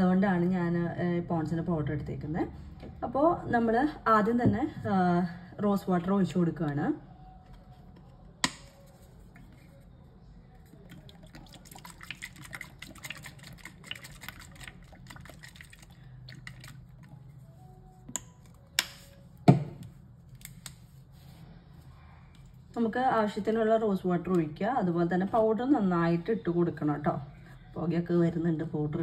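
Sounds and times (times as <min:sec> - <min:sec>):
liquid pouring and spattering: 0:10.9 - 0:16.9.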